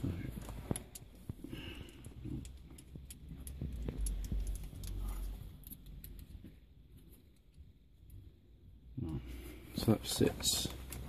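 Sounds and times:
small metal parts clinking: 0:00.0 - 0:06.4.

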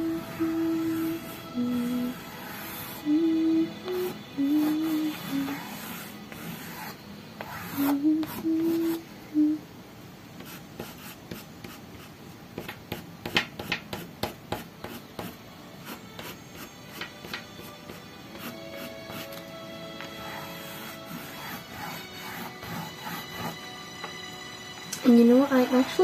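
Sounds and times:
soft background music: 0:00.0 - 0:09.7, 0:12.9 - 0:26.0
pastel scratching on paper: 0:00.2 - 0:03.1, 0:03.9 - 0:09.0, 0:10.4 - 0:19.4, 0:20.0 - 0:23.7.

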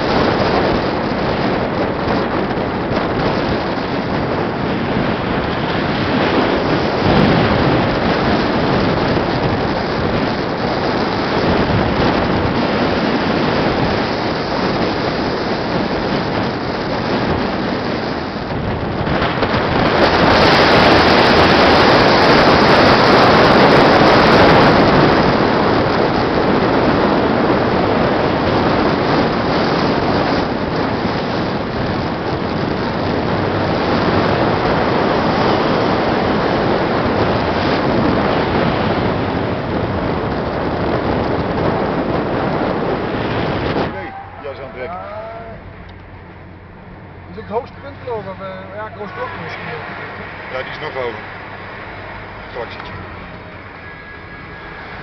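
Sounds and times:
car road noise: 0:00.0 - 0:55.0
wind buffeting microphone: 0:00.0 - 0:55.0.

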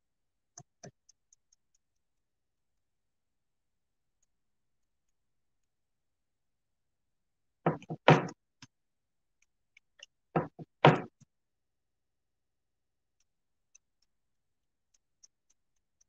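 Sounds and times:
knocks and taps on wood: 0:07.7 - 0:08.4, 0:10.3 - 0:11.3.

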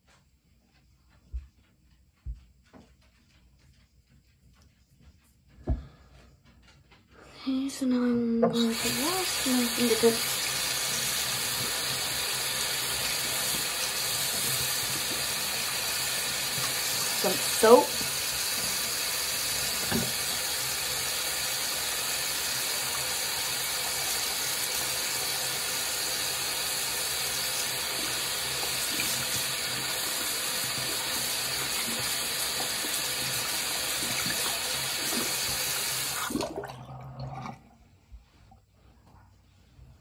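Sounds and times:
faucet running: 0:08.4 - 0:36.8
hands washing under water: 0:08.5 - 0:36.8.

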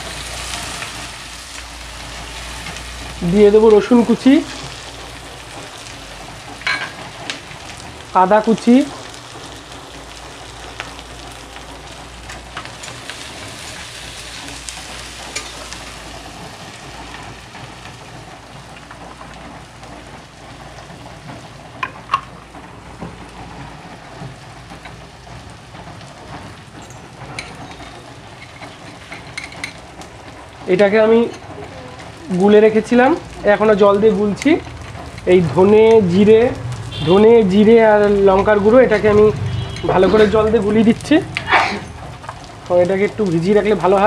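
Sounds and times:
spices sizzling in oil: 0:00.0 - 0:44.0.

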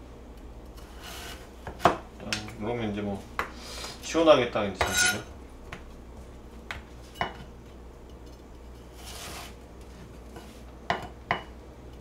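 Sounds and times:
knife scraping: 0:00.8 - 0:01.9, 0:04.8 - 0:05.3, 0:08.7 - 0:09.6.

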